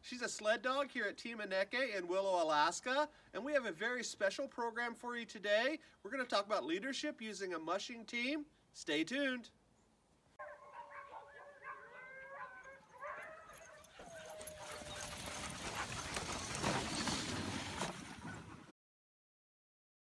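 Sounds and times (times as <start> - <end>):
sled dogs whining and yipping: 10.4 - 18.7
sled rushing through snow: 14.2 - 18.7.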